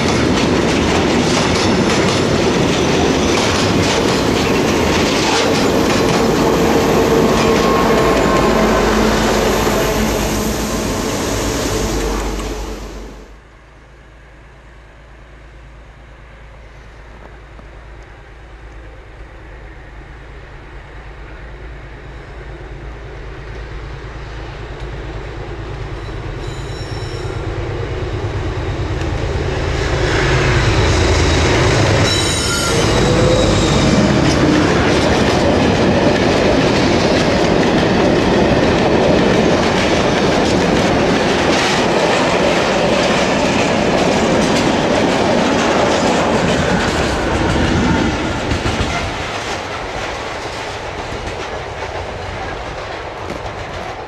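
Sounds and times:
clattering train wheels: 0.0 - 13.2, 28.2 - 54.0
diesel locomotive engine drone: 0.0 - 54.0
high-pitched wheel squeals: 26.0 - 27.4, 31.3 - 34.4.

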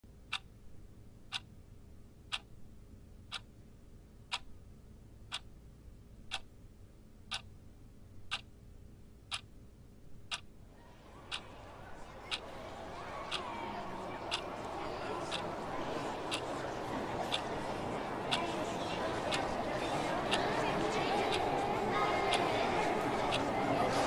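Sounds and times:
clock ticking: 0.2 - 0.5, 1.3 - 1.5, 2.3 - 2.5, 3.3 - 3.5, 4.3 - 4.5, 5.3 - 5.5, 6.3 - 6.5, 7.3 - 7.5, 8.3 - 8.5, 9.3 - 9.5, 10.3 - 10.5.

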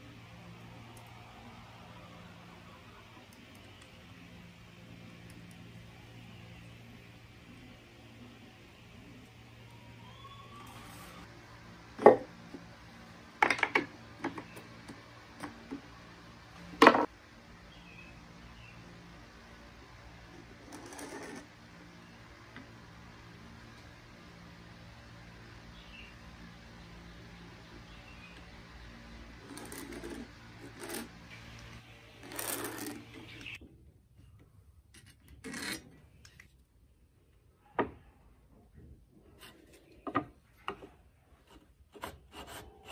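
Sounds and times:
square and pen scraping on wood: 20.6 - 21.5, 29.4 - 31.2, 32.2 - 33.5, 35.0 - 35.9.

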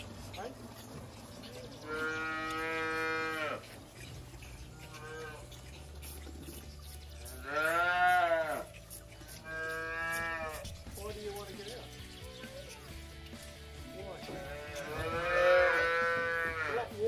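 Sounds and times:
calves mooing: 1.7 - 10.8, 14.2 - 17.0.

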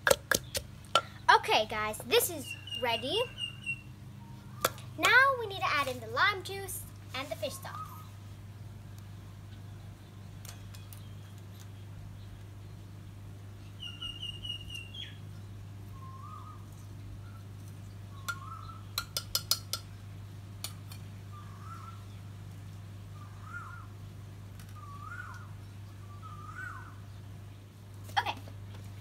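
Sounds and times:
steady low hum: 0.0 - 29.0
bird calling: 2.1 - 5.0, 7.2 - 8.2, 13.7 - 15.2, 15.9 - 17.5, 18.1 - 19.0, 21.3 - 22.2, 23.2 - 23.9, 24.7 - 27.2.

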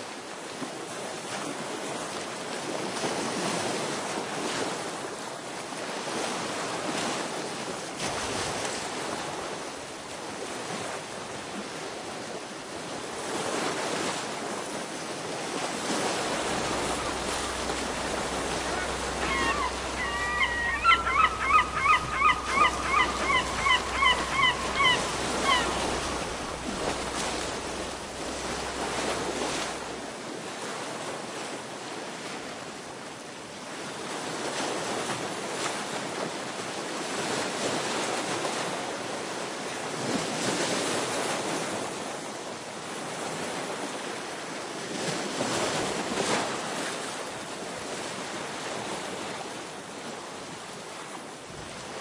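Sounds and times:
sea waves washing against rocks: 0.9 - 33.0
bird calling repeated notes: 16.3 - 29.8.

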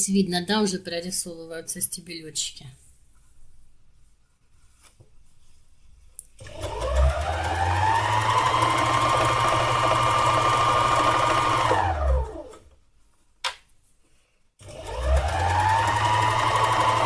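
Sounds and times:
needle felting machine running: 6.4 - 12.7, 14.6 - 17.0.

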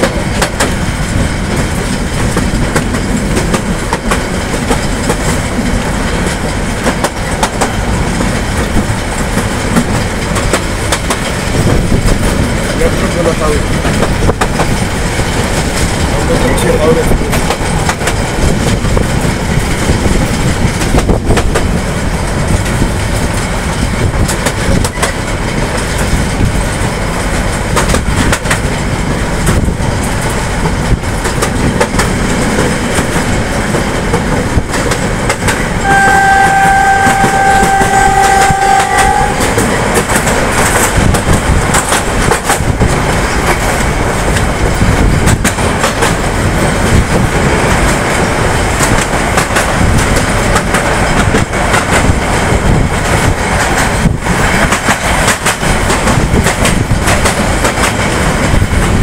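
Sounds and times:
train coaches rumbling: 0.0 - 59.0
wheels clacking over rail joints: 0.0 - 59.0
locomotive horn blast: 35.8 - 39.6.

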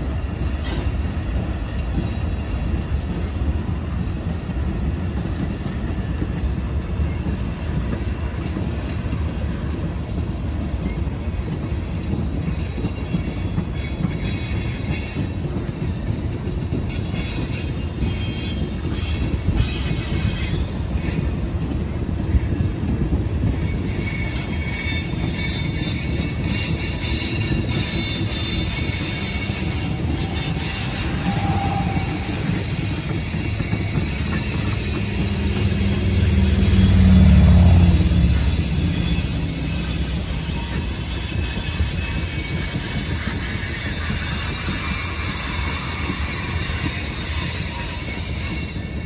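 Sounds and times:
train wheels rumbling on rails: 0.0 - 49.0
high-pitched wheel squeal: 23.4 - 49.0.

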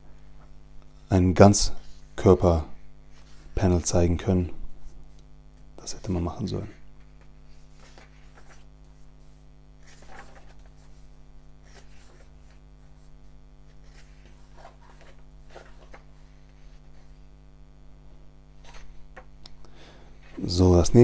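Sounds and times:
low electrical hum: 0.0 - 21.0
comic book pages turning: 5.9 - 17.2, 18.6 - 19.3.

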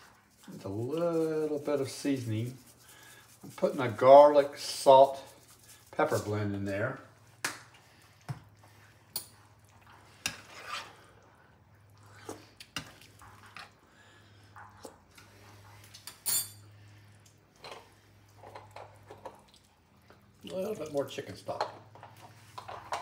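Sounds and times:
wooden spoon stirring sauce: 0.0 - 16.1.

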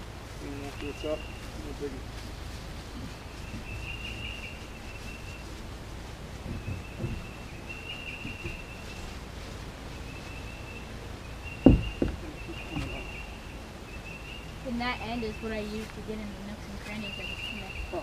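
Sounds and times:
low steady rumble: 0.0 - 18.0
sharp low thump: 11.6 - 13.0.

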